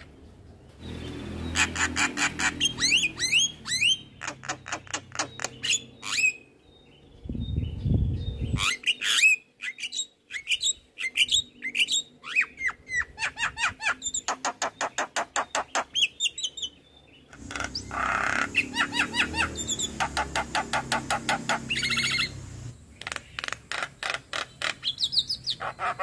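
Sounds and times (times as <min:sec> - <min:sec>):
myna bird singing chattering song: 0:00.0 - 0:26.0
low rumbling noise: 0:17.4 - 0:22.9
fast run of bird clicks: 0:19.6 - 0:24.8.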